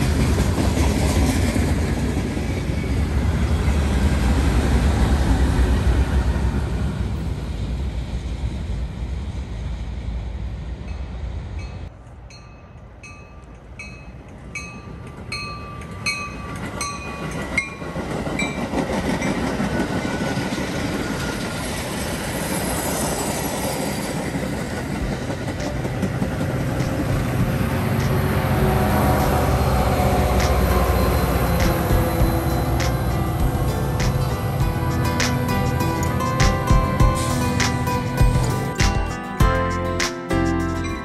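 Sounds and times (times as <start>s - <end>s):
train passing with wheel clatter: 0.0s - 41.0s
crossing bell ringing: 10.9s - 19.7s, 25.0s - 41.0s.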